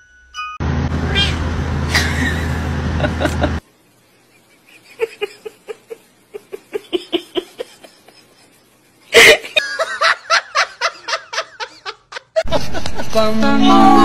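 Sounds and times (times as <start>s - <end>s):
person laughing in bursts: 1.9s - 3.6s, 4.3s - 13.2s.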